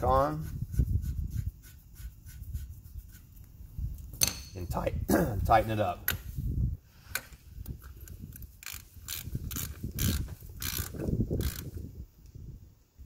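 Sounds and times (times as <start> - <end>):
ratchet clicking: 8.1 - 11.8.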